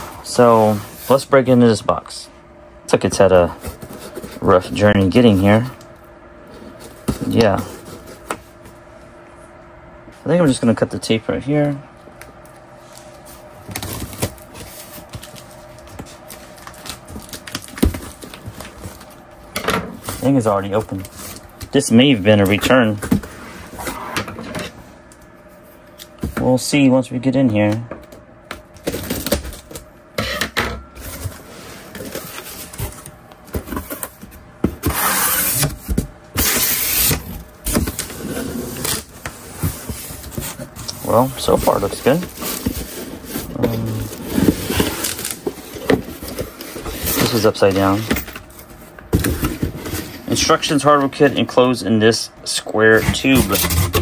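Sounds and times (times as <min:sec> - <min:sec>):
cardboard box rustling and scraping: 0:31.0 - 0:50.4.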